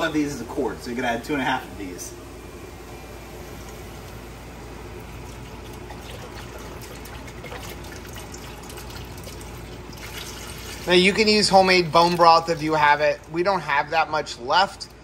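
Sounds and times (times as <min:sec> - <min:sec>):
liquid pouring into a pot: 0:03.5 - 0:13.5.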